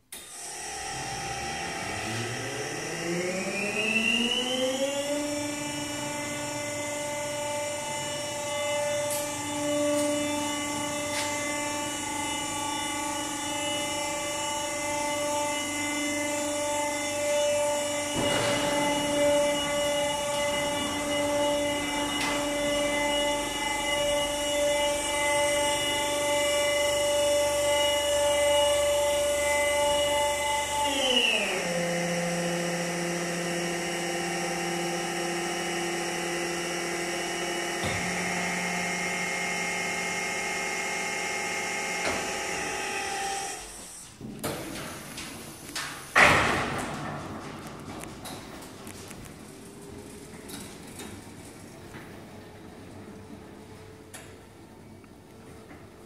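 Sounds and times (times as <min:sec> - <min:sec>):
electric motor whine: 0:00.3 - 0:44.0.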